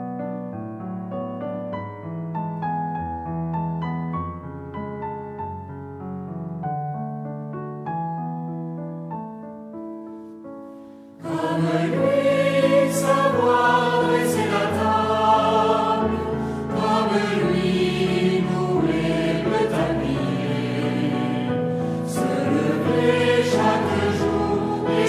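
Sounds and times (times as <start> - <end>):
choir singing religious song: 11.2 - 25.0.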